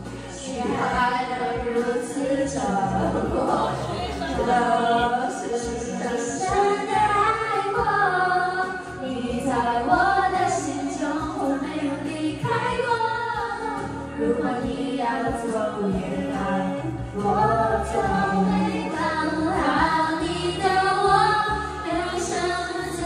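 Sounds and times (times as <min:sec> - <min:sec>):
musical accompaniment: 0:00.0 - 0:23.0
person singing: 0:00.4 - 0:12.7.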